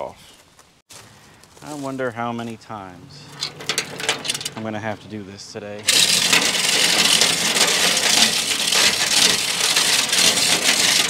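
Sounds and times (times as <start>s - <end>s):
chain hoist chain rattling: 3.2s - 5.1s, 5.8s - 11.0s.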